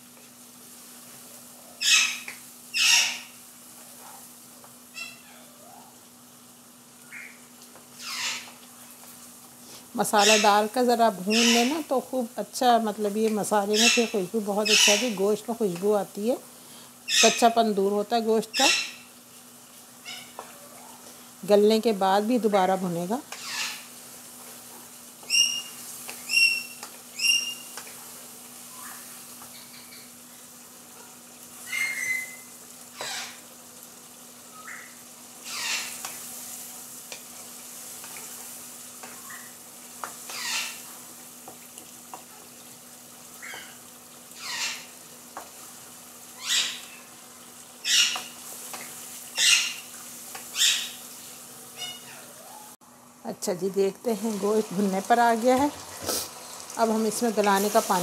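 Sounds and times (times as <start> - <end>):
meat sizzling in a pan: 0.0 - 58.0.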